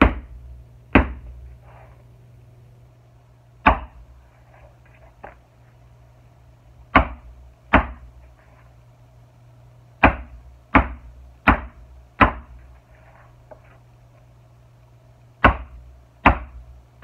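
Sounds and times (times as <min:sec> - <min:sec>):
mallet striking leather punch: 0:00.0 - 0:01.3, 0:03.6 - 0:04.0, 0:06.9 - 0:08.1, 0:10.0 - 0:12.5, 0:15.4 - 0:16.6.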